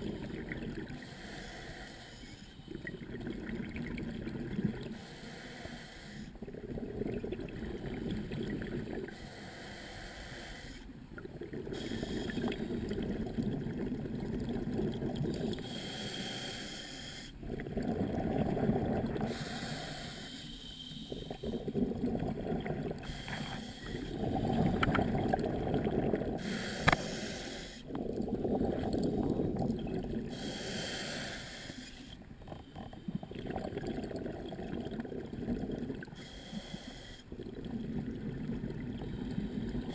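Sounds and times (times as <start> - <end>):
diver breathing through regulator: 0.9 - 3.0, 4.9 - 6.4, 9.1 - 10.9, 11.7 - 12.9, 15.4 - 18.1, 19.2 - 24.9, 26.3 - 28.6, 30.2 - 33.3, 36.0 - 37.4
sharp click: 26.8 - 27.0.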